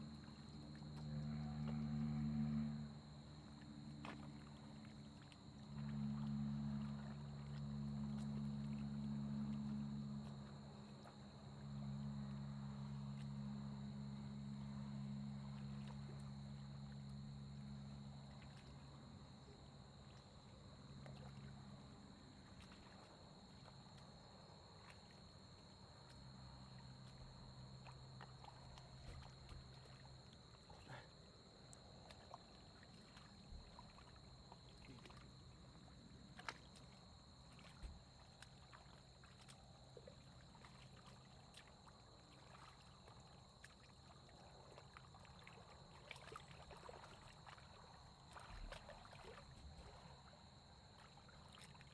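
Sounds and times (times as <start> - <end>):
hands squelching in wet mud: 36.2 - 50.2.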